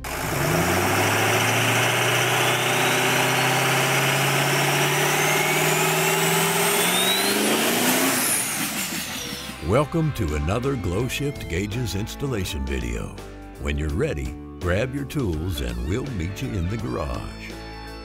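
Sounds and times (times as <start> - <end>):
engine revving up: 0.0 - 9.6.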